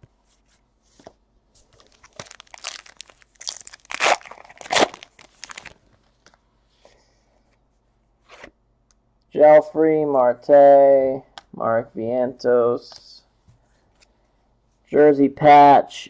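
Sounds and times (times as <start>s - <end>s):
card pack wrapper tearing: 1.8s - 5.8s.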